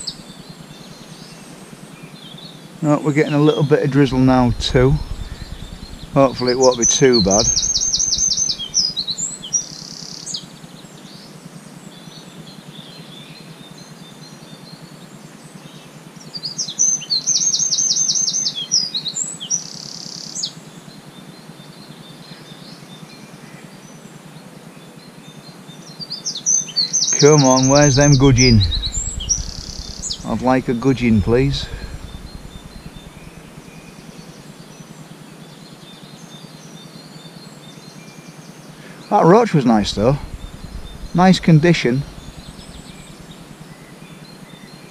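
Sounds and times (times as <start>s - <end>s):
songbird singing: 3.0s - 10.0s, 26.6s - 34.4s, 38.6s - 44.8s
faint bird chirps: 3.5s - 9.6s, 27.0s - 34.3s, 38.8s - 44.4s
faint background hiss: 27.1s - 44.9s.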